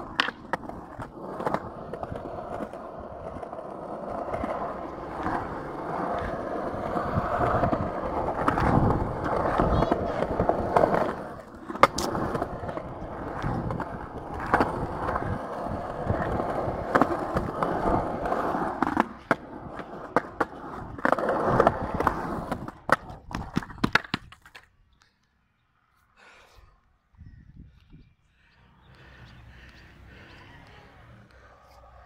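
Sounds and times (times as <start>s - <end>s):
skateboard clacks: 0.0s - 24.8s
skateboard wheels rolling on concrete: 0.0s - 32.0s.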